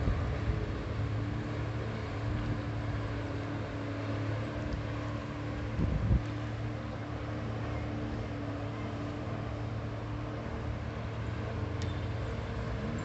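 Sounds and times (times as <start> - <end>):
wind buffeting microphone: 0.0 - 1.2, 5.6 - 6.4
jet ski engine droning: 0.0 - 13.0.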